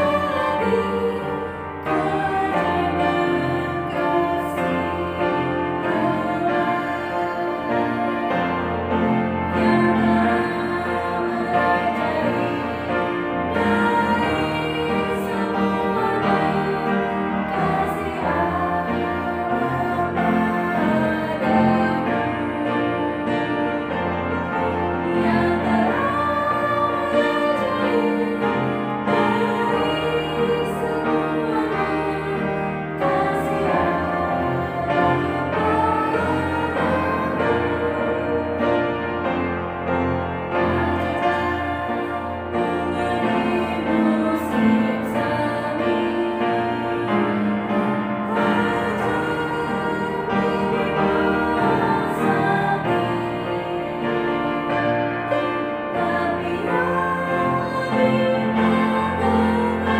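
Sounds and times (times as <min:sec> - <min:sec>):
woman singing a hymn: 0:00.0 - 0:08.4, 0:09.5 - 0:23.4, 0:25.0 - 0:38.6, 0:56.0 - 0:59.9
instrumental accompaniment: 0:00.0 - 0:59.9.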